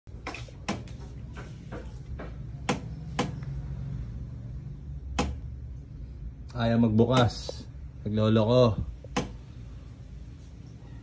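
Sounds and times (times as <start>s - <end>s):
low steady hum: 0.1s - 11.0s
sharp clicks and knocks: 0.2s - 3.5s, 5.2s - 5.4s, 9.0s - 9.4s.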